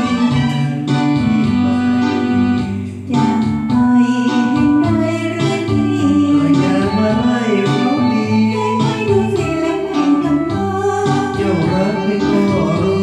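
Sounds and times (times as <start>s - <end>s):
karaoke backing track: 0.0s - 13.0s
person singing karaoke: 0.0s - 13.0s.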